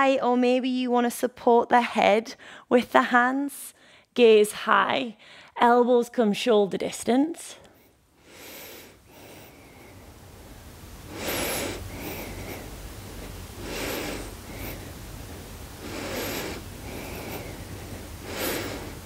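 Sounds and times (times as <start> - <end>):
woman breathing in and out: 2.3 - 2.7, 3.7 - 4.2, 5.2 - 5.6, 7.7 - 19.0.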